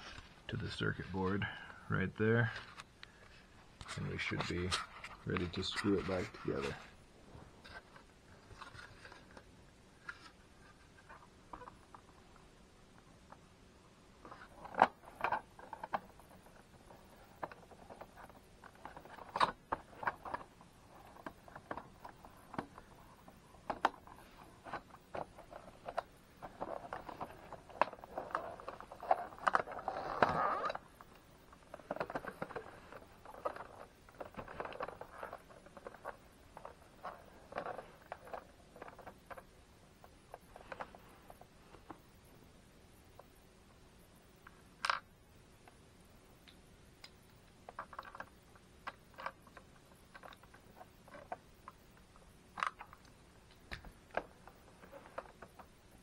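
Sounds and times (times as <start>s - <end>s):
plastic scraping and rattling: 2.5s - 12.3s, 14.2s - 42.0s, 47.6s - 56.0s
plastic parts clicking: 14.2s - 42.0s.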